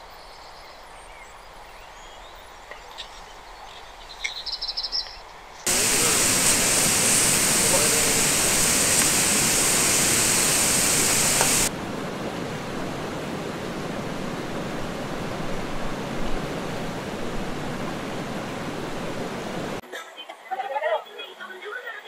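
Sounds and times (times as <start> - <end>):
food deep-frying in oil: 5.7 - 11.7
even rushing noise: 5.7 - 19.8.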